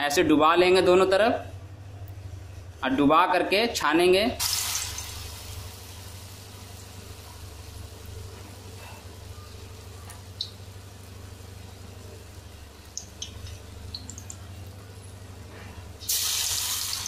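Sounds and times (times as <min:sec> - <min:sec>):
low steady hum: 0:00.0 - 0:17.0
food deep-frying in hot oil: 0:04.4 - 0:17.0.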